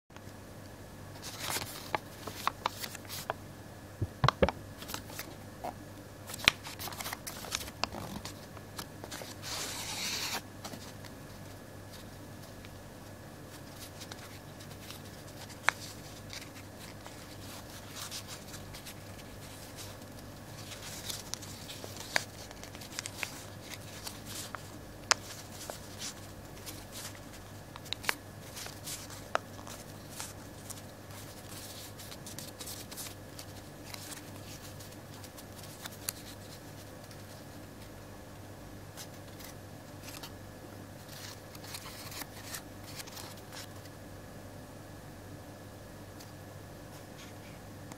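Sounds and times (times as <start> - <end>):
faint steady hum: 0.2 - 47.9
paper crackling and creasing: 1.2 - 3.4, 4.2 - 5.4, 6.3 - 12.7, 13.5 - 37.9, 39.0 - 40.3, 41.0 - 43.9
paper rustle: 1.2 - 3.4, 6.3 - 12.7, 13.5 - 37.9, 39.0 - 40.3, 41.0 - 43.9.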